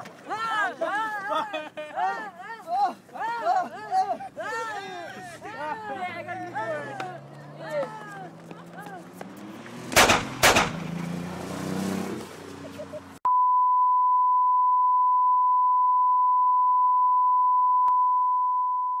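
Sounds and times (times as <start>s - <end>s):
outdoor noise: 0.0s - 13.3s
steady test-tone beep: 13.3s - 19.0s.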